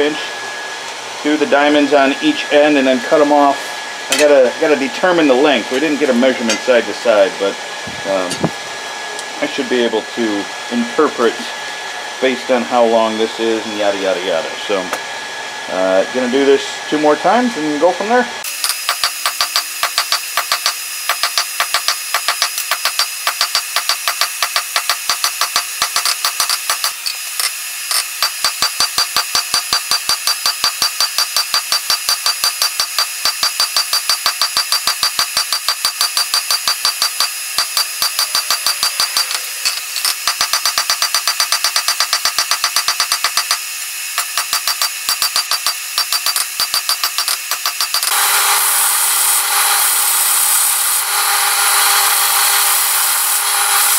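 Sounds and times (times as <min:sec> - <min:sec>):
hammer striking steel on anvil: 0:27.9 - 0:43.6, 0:44.2 - 0:48.2
anvil ringing: 0:29.9 - 0:43.5.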